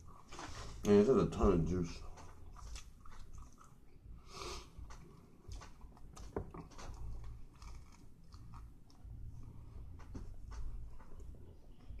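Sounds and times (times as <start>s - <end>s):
person chewing sandwich: 2.0s - 11.4s.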